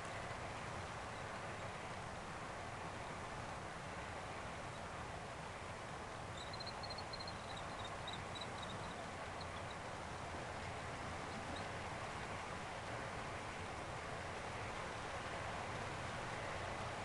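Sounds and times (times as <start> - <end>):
faint high-pitched chirps: 6.4 - 9.8.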